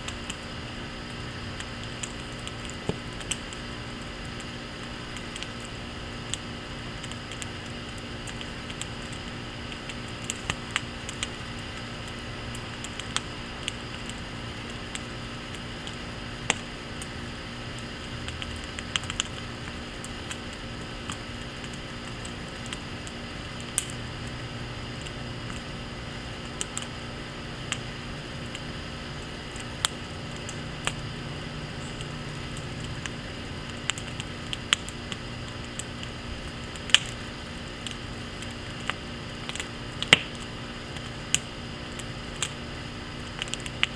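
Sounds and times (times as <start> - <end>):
wood fire crackling and popping: 0.0 - 43.9.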